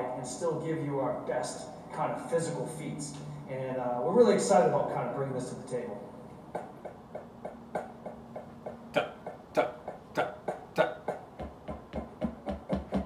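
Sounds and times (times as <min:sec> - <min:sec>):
drumsticks tapping practice pad: 0:06.4 - 0:13.0.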